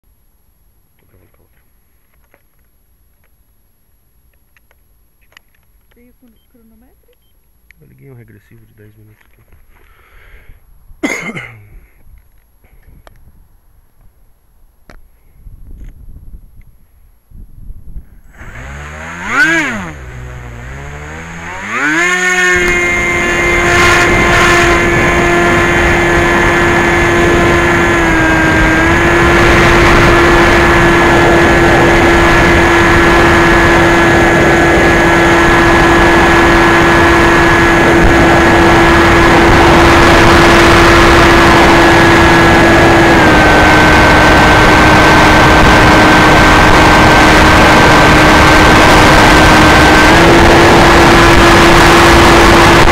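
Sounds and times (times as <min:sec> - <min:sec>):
electric motor high whine: 0:18.3 - 0:52.9.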